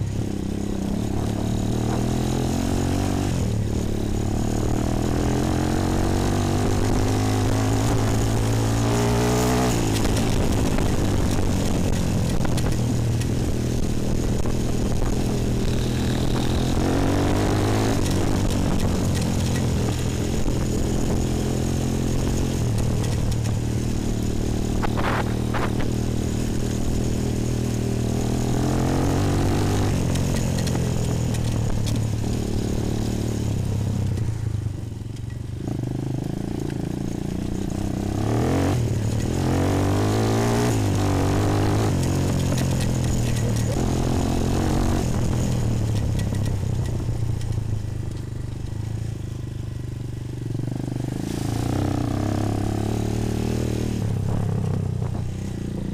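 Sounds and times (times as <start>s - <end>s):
quad engine revving: 0.2s - 34.0s, 35.6s - 46.5s, 50.6s - 55.9s.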